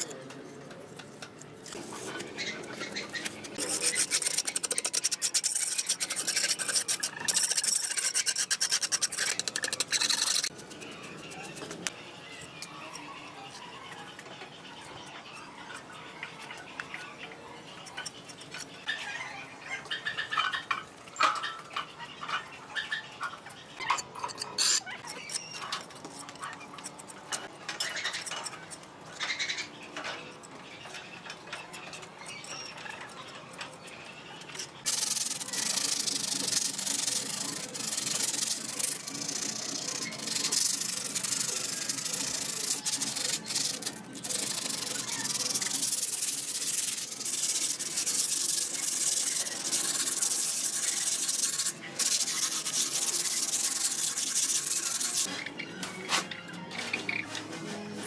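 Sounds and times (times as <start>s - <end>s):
trowel scraping cement: 1.7s - 11.7s, 34.9s - 55.3s
hand sanding concrete: 34.9s - 55.3s.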